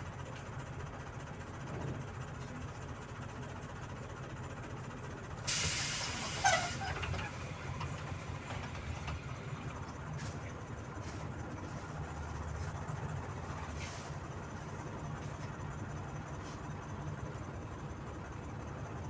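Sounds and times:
bus idling: 0:00.0 - 0:19.0
compressed air hissing: 0:05.5 - 0:07.0.

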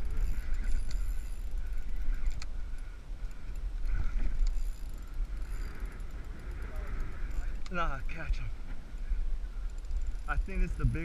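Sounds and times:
wind buffeting microphone: 0:00.0 - 0:11.0
fishing rod handling clicks: 0:00.1 - 0:06.4, 0:07.1 - 0:07.8.

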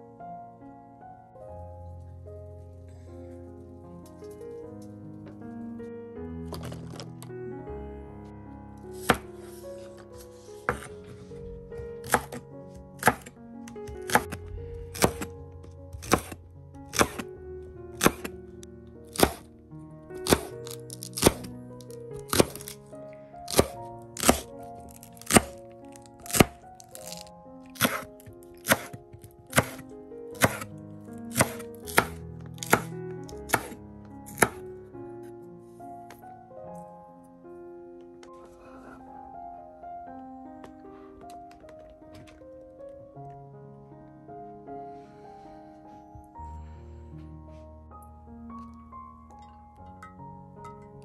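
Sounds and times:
background music: 0:00.0 - 0:51.0
knife chopping on wooden board: 0:09.0 - 0:09.3, 0:10.6 - 0:10.9, 0:12.0 - 0:12.4, 0:13.0 - 0:13.3, 0:13.9 - 0:15.3, 0:16.0 - 0:17.3, 0:18.0 - 0:18.3, 0:19.1 - 0:19.4, 0:20.2 - 0:21.5, 0:22.3 - 0:22.8, 0:23.5 - 0:24.5, 0:25.1 - 0:25.6, 0:26.2 - 0:29.8, 0:30.4 - 0:30.7, 0:31.3 - 0:34.6.

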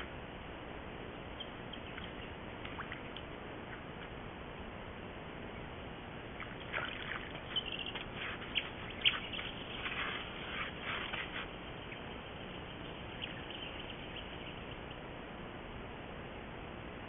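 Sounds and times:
animal lapping water: 0:01.7 - 0:04.1, 0:06.4 - 0:14.6.

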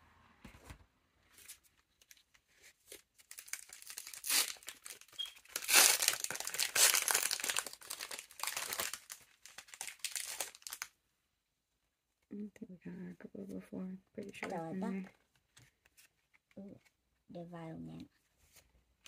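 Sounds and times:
foil wrapper crinkling and tearing: 0:02.9 - 0:10.9.

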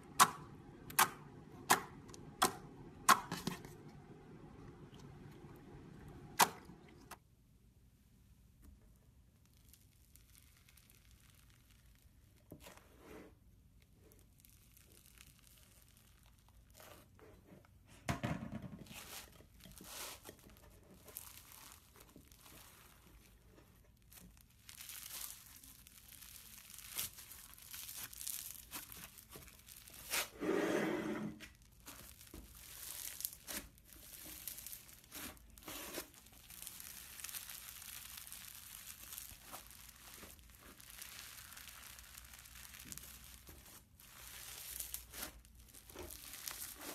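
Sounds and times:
slime crackling and crunching: 0:09.2 - 0:13.0, 0:13.8 - 0:17.2, 0:18.9 - 0:30.4, 0:31.5 - 0:46.9.

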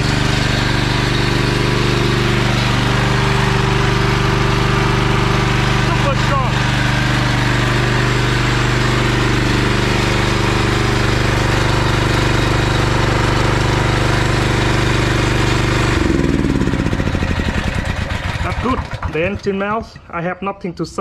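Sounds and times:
generator engine running: 0:00.0 - 0:20.3.

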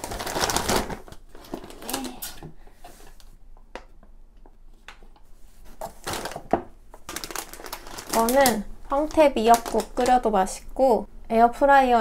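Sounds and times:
plastic packaging crinkling: 0:00.0 - 0:02.4, 0:05.6 - 0:10.6.

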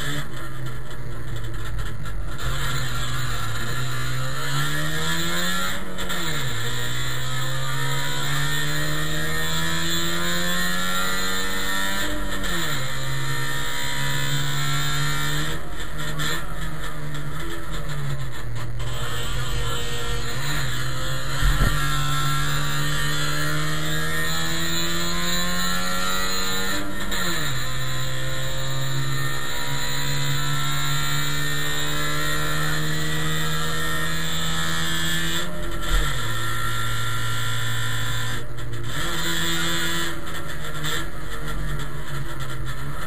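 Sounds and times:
race car engine under load: 0:00.0 - 0:43.0
low thumps: 0:21.3 - 0:22.2.

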